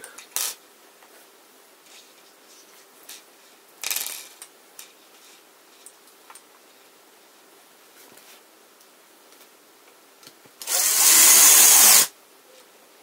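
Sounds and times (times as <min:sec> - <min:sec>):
screws scraping rattle: 0:10.6 - 0:12.1.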